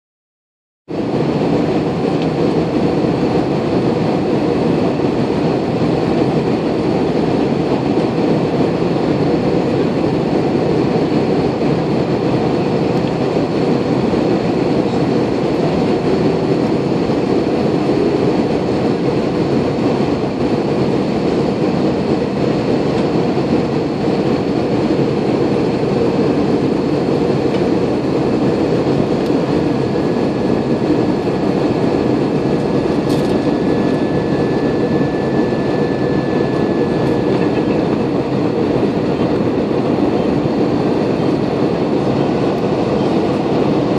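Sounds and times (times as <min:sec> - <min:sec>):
jet engine rumble: 0:00.9 - 0:43.9
rushing airflow: 0:00.9 - 0:43.9
faint steady whining tones: 0:25.8 - 0:43.3.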